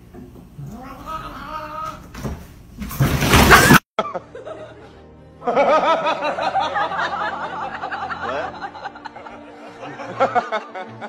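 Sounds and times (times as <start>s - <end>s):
music: 3.3s - 11.0s
snickering laugh sound effect: 3.5s - 11.0s.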